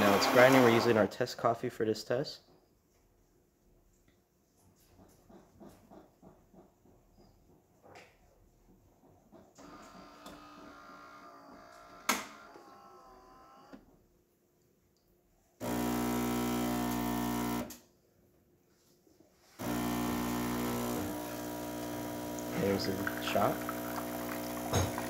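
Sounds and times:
pump humming loudly: 0.0 - 1.0, 15.6 - 17.7, 19.6 - 25.0
brew unit whirring: 0.0 - 1.1, 15.6 - 17.7, 19.6 - 25.0.

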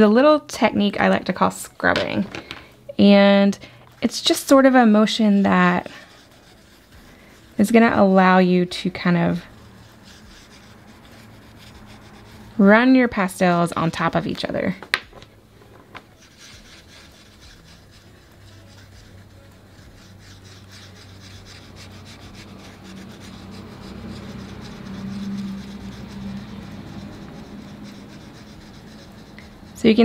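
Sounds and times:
oil pastel scrubbing on paper: 4.1 - 14.6, 16.2 - 30.0.

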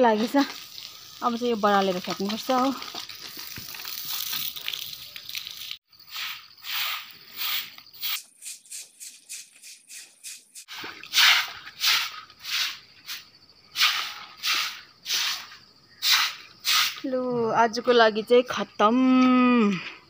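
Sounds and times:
broom scrubbing wet floor: 6.1 - 12.8.

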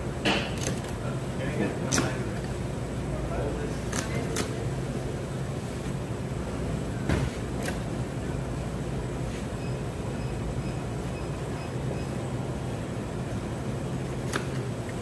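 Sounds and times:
faint high beeping: 9.6 - 12.3.

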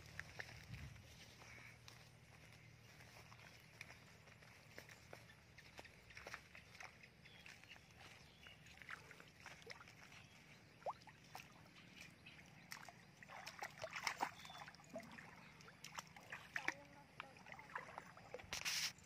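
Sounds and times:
footsteps rustling through grass: 0.0 - 12.4, 18.4 - 19.0
feet splashing in water: 0.0 - 19.0.

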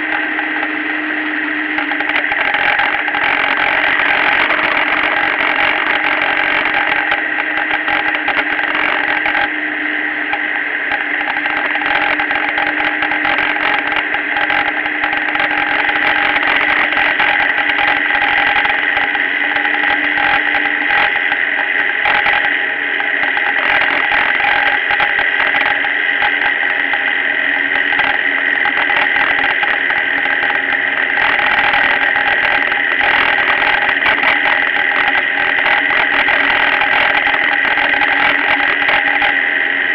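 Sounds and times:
motorcycle engine running: 0.0 - 39.9
steady hum: 0.0 - 39.9
wind and road noise: 0.0 - 39.9.

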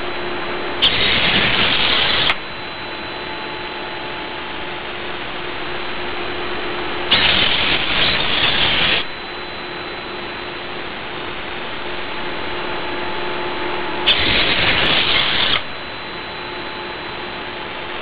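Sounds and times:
faint hum: 0.0 - 18.0
servo motors whirring: 7.1 - 9.0, 14.1 - 15.6.

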